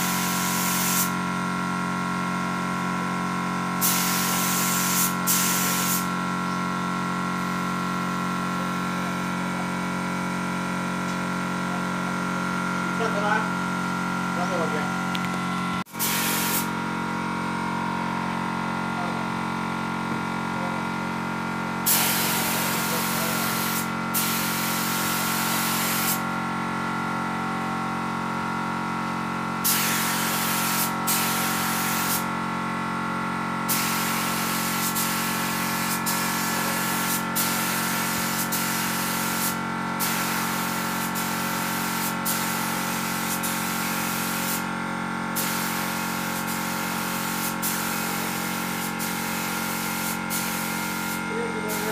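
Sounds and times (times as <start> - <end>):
spray gun hissing: 0.0 - 1.2, 3.8 - 6.2, 15.9 - 16.8, 21.8 - 26.2, 29.6 - 32.3, 33.7 - 44.7, 45.4 - 51.9
steady machine hum: 0.0 - 46.2.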